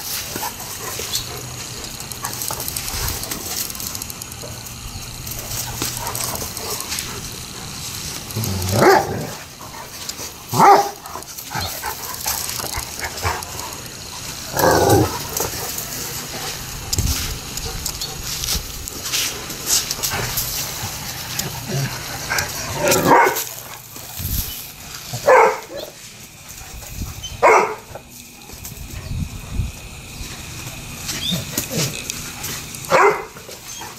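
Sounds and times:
dogs barking: 8.4s - 16.8s, 21.2s - 23.9s, 25.1s - 26.0s, 27.3s - 28.1s, 32.8s - 33.9s.

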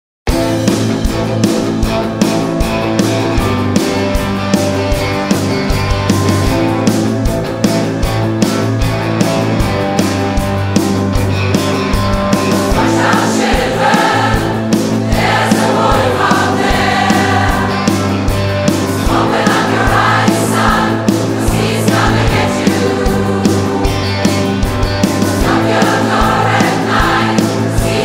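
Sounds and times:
drums: 0.3s - 28.0s
electric guitar: 0.3s - 28.0s
keyboard: 0.3s - 28.0s
choir singing: 12.6s - 28.0s.

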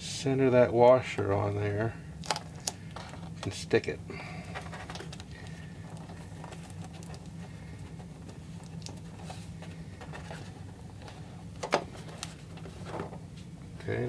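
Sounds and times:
tape crinkle: 2.2s - 3.5s, 4.5s - 11.2s
packing tape rustling and tapping: 4.5s - 13.2s.

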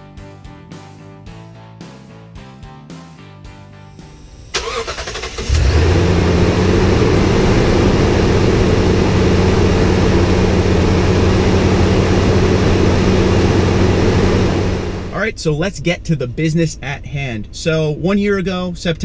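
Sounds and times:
engine cranking: 4.5s - 13.0s
engine idling loudly: 4.6s - 15.2s.

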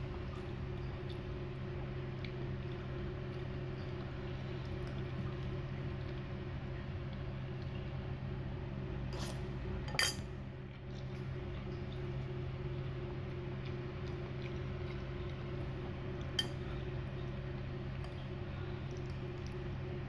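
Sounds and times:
steady low hum: 0.0s - 20.0s
fork clinking against ceramic bowl: 9.9s - 10.2s, 16.4s - 16.6s.

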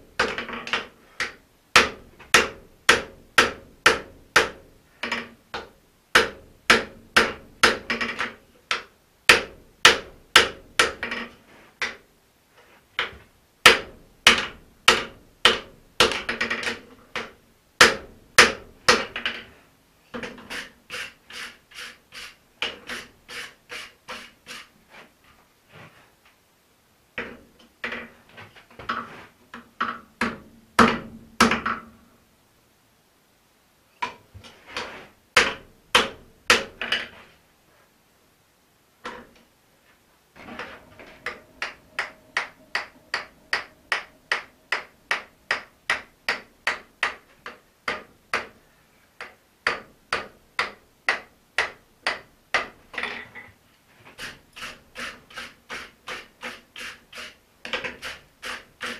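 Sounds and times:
hammer striking metal on anvil: 40.8s - 46.8s.

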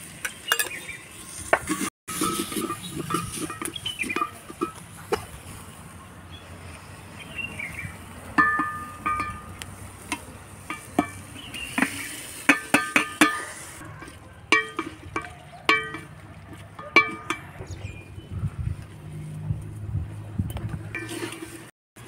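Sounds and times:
oil sizzling faintly: 0.0s - 16.8s
wooden spoon scraping metal pot: 0.4s - 5.7s, 8.3s - 18.3s, 20.6s - 21.7s
metallic clinks of pot: 2.1s - 5.3s, 8.4s - 11.9s, 12.5s - 18.0s.

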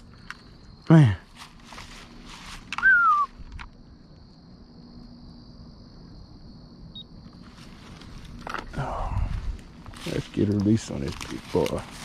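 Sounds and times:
insects trilling: 0.0s - 12.0s
falling whistle-like call: 2.7s - 3.4s.

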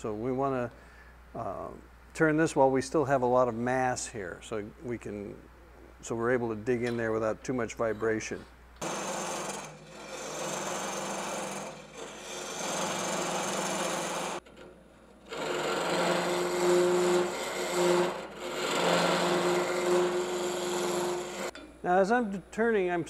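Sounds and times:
gouge cutting wood on lathe: 8.8s - 14.6s, 15.2s - 21.5s
lathe humming: 8.8s - 21.5s.

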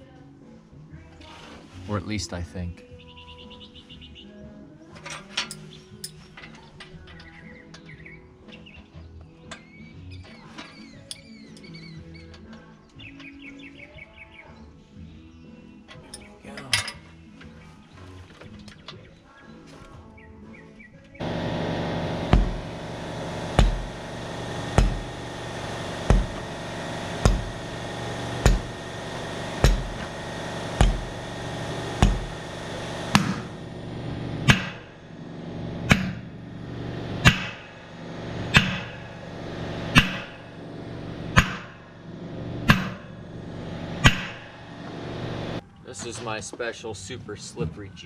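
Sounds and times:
steady machine hum: 21.2s - 45.6s
hammer striking tire rim: 22.0s - 33.6s, 34.4s - 34.9s, 35.8s - 36.3s, 37.2s - 37.7s, 38.5s - 39.0s, 39.9s - 40.4s, 41.3s - 41.8s, 42.6s - 43.1s, 44.0s - 44.4s.

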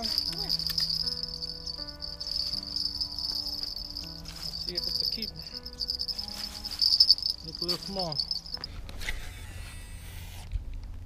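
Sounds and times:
high-pitched insect-like trilling: 0.0s - 8.8s
soft held chords: 0.0s - 9.0s.

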